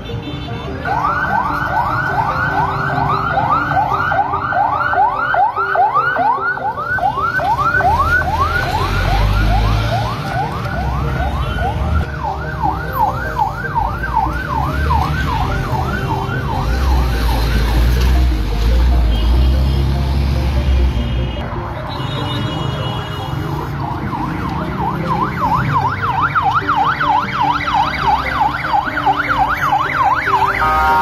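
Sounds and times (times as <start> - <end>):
ambulance siren yelping: 0.6 - 18.5, 21.5 - 31.0
vehicle engine rumbling: 6.2 - 27.2.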